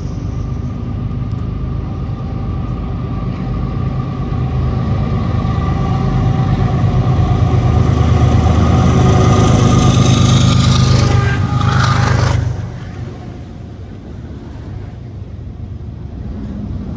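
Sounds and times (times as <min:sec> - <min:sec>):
diesel locomotive engine drone: 0:00.0 - 0:16.9.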